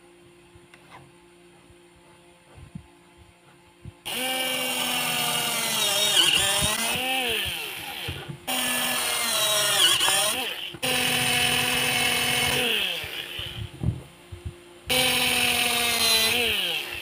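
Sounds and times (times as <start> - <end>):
electric drill boring plastic: 4.1 - 13.6, 14.9 - 17.0.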